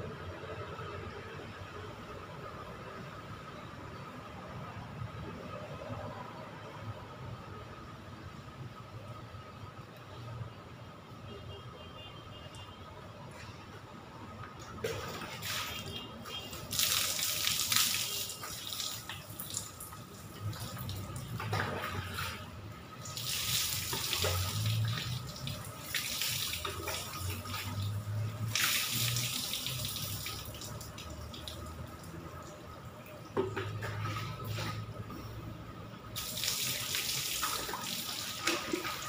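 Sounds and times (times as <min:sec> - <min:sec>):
water pouring onto concrete floor: 0:14.8 - 0:32.6, 0:36.2 - 0:39.0
water trickling from bucket: 0:14.9 - 0:35.2, 0:36.1 - 0:39.0.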